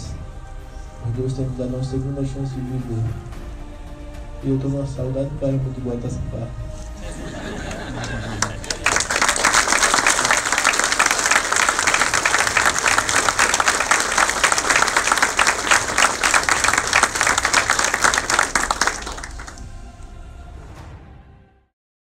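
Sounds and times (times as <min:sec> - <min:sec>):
faint music: 0:00.0 - 0:20.8
audience applauding: 0:07.0 - 0:20.0.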